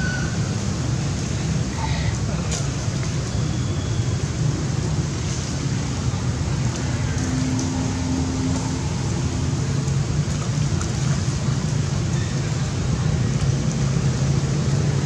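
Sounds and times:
stream water rushing: 0:00.0 - 0:15.0
small splashes: 0:05.2 - 0:14.2.

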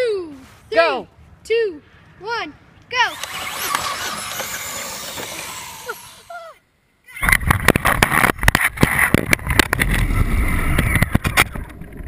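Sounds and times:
rc truck motor rattling: 0:03.0 - 0:06.3.

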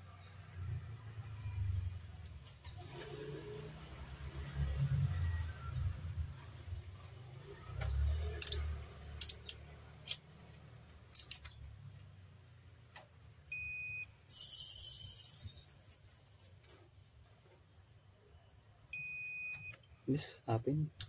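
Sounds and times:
multimeter beep: 0:13.5 - 0:15.6, 0:18.9 - 0:19.8.

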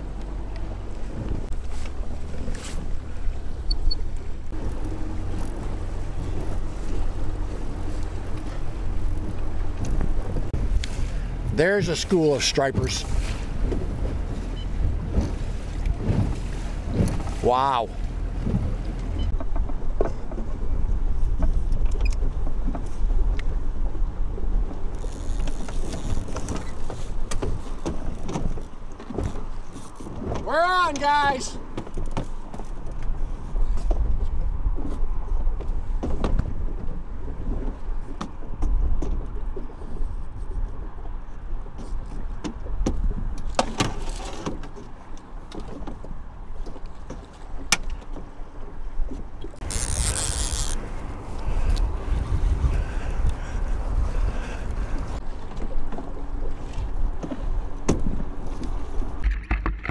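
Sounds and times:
wind buffeting microphone: 0:00.0 - 0:31.8, 0:49.0 - 0:59.3
water slapping boat hull: 0:00.0 - 0:59.9.

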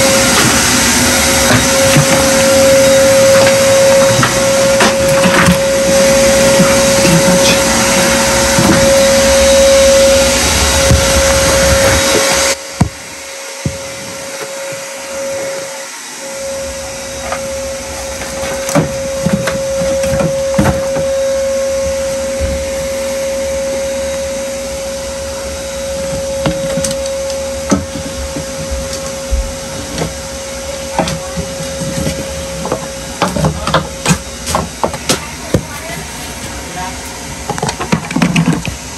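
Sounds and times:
low rumble: 0:00.0 - 0:12.7
shop vacuum whining: 0:00.0 - 0:38.9.

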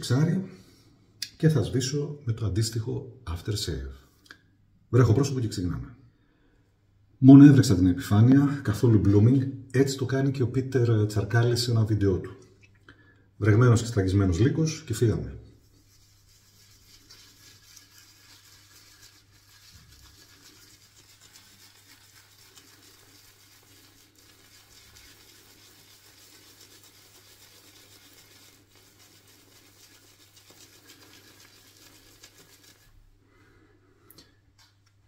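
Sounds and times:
shaving brush scratching on soap: 0:15.6 - 0:33.0.

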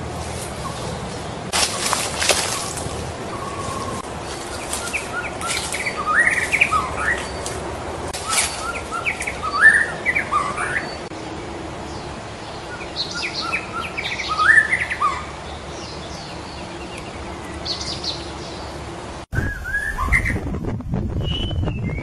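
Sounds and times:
bird singing whistled notes: 0:02.4 - 0:07.5, 0:08.2 - 0:11.0, 0:12.7 - 0:18.6, 0:19.4 - 0:20.4, 0:21.2 - 0:22.0.

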